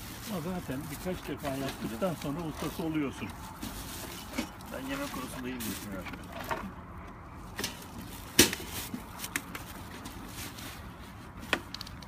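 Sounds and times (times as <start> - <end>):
handling clicks and rustle: 0.0 - 12.0.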